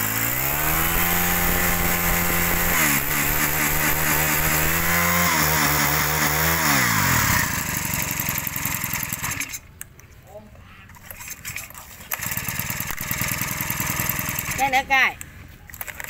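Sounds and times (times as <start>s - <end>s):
brush-cutter engine revving: 0.0s - 9.7s, 12.1s - 14.9s.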